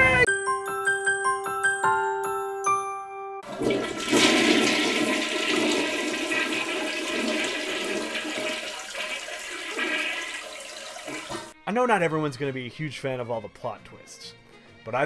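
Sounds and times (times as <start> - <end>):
toilet flushing: 3.4 - 11.6.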